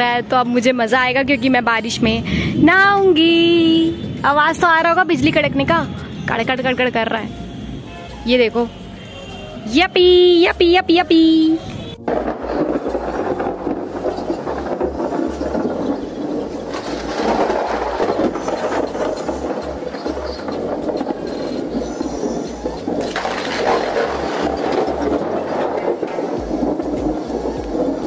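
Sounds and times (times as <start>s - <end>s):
thunderstorm wind: 0.0s - 7.9s, 11.5s - 28.0s
light rain: 11.9s - 28.0s.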